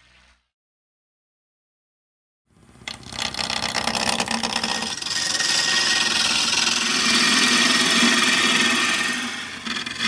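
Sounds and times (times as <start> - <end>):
turning tool cutting wood: 2.8 - 10.0
wood lathe hum: 2.8 - 10.0.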